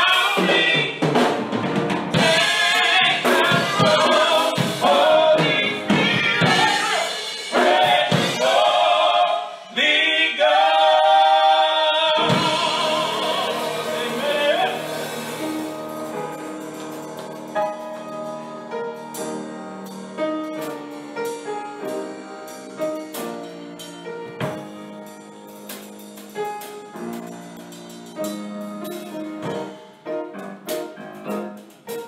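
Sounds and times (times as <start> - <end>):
gospel singing: 0.0 - 1.4, 2.1 - 16.6
piano playing chords: 0.0 - 32.0.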